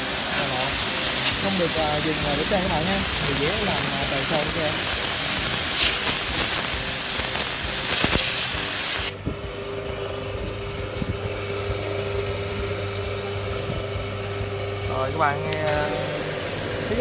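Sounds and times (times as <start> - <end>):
pressure washer water jet hissing: 0.0 - 9.2, 15.0 - 17.0
motor and pump humming: 0.0 - 17.0.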